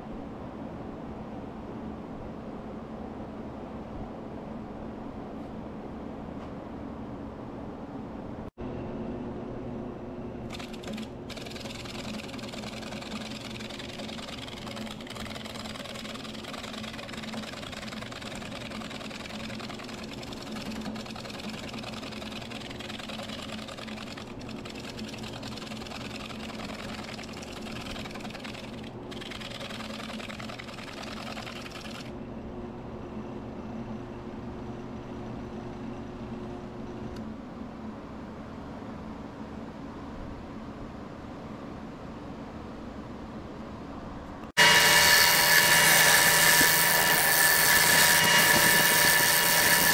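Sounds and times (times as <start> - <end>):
gouge cutting wood hiss: 44.6 - 49.9
lathe motor hum: 44.6 - 49.9.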